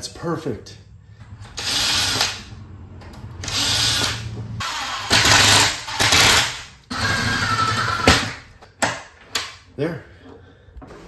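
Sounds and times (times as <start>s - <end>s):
cordless drill driving screws: 1.6s - 2.4s, 3.4s - 8.2s.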